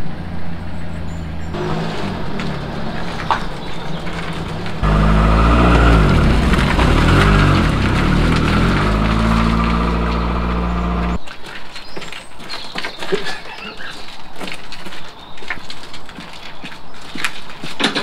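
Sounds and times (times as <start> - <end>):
small car engine revving: 1.6 - 11.2.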